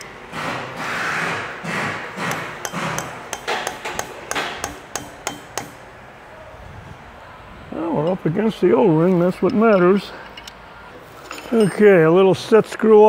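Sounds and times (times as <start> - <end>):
hammer tapping metal wrench: 2.2 - 5.8.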